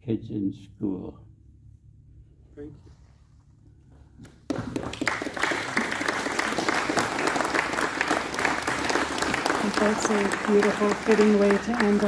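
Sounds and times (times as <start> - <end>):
audience applauding: 4.5 - 12.0.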